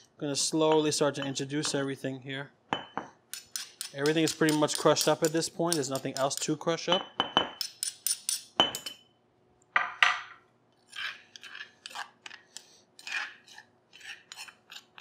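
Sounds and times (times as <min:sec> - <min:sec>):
spoon clinking in stone mortar: 0:02.8 - 0:09.1
spoon scraping stone mortar: 0:03.3 - 0:06.6, 0:10.8 - 0:15.0.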